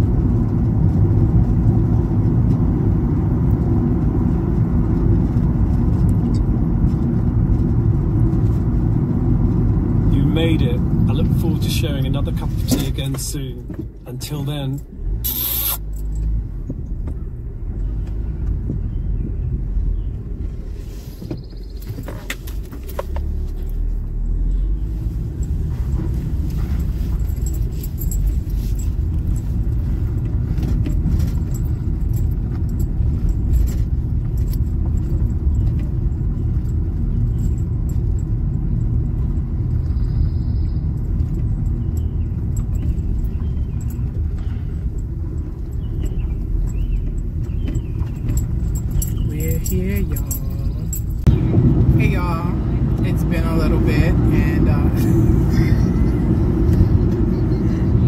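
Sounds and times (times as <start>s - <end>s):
engine and tyres rumbling on road: 0.0s - 58.0s
light metallic jingling: 10.2s - 18.0s, 21.4s - 58.0s
small rattles: 21.4s - 51.3s.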